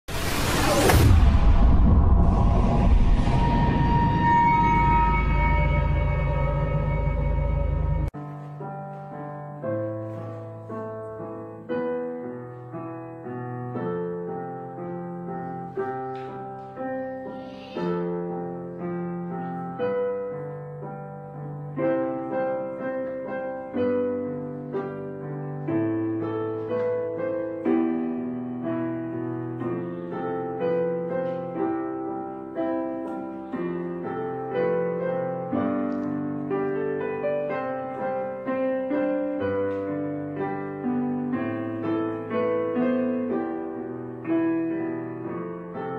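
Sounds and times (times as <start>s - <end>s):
solo piano music: 4.4s - 45.9s.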